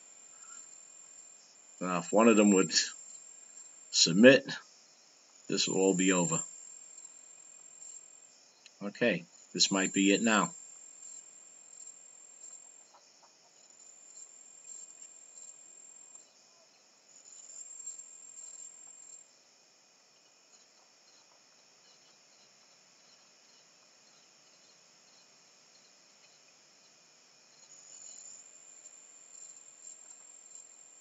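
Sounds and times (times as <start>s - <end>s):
insects trilling: 0.0s - 31.0s.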